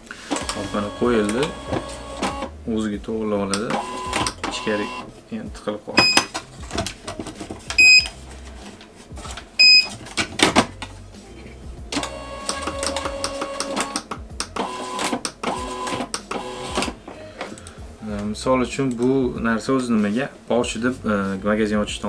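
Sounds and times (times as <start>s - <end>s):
label printer beeping: 0.3s - 2.5s, 3.7s - 5.1s, 6.0s - 6.3s, 7.8s - 8.1s, 9.6s - 9.9s, 14.6s - 16.9s
printer feed motor whining: 0.3s - 2.5s, 12.0s - 14.0s, 14.6s - 17.0s.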